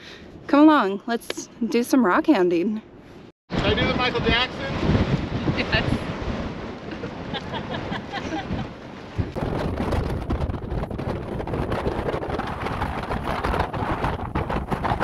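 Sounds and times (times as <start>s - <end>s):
wind buffeting microphone: 3.5s - 15.0s.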